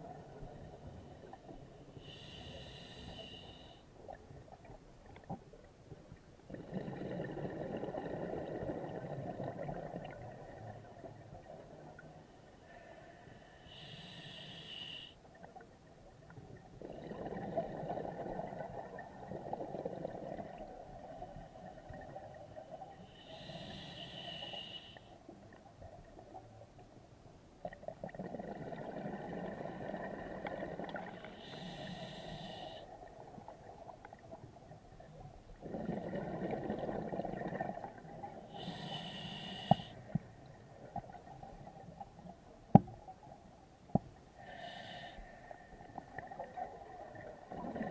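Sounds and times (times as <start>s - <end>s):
exhaled bubbles rushing underwater: 35.6s - 38.3s
regulator hissing inhalation: 38.6s - 40.0s.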